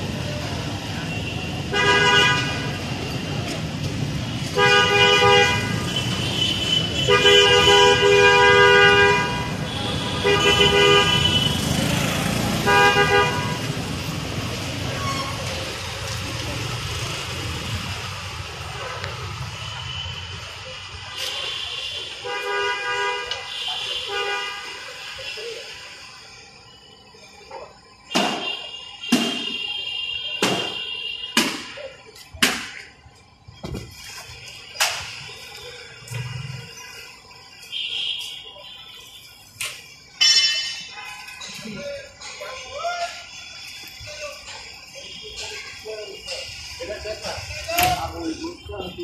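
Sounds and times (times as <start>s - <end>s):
street traffic rumble: 0.0s - 49.0s
car horn: 1.0s - 3.0s, 4.3s - 13.9s, 18.9s - 26.5s, 28.0s - 31.7s, 34.8s - 49.0s
vehicle horn honks: 1.1s - 2.8s, 4.5s - 11.8s, 12.6s - 13.8s.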